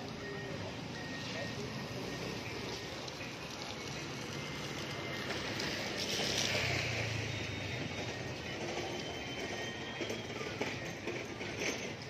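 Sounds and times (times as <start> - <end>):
tyres hissing on wet road: 0.0 - 8.3
vehicle engine: 0.0 - 11.8
traffic noise: 0.0 - 12.0.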